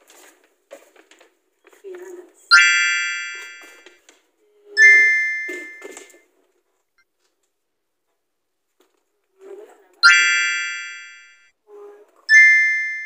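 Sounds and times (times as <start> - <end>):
bright glockenspiel chimes: 2.5 - 3.9, 4.8 - 6.1, 10.0 - 11.4, 12.3 - 13.0.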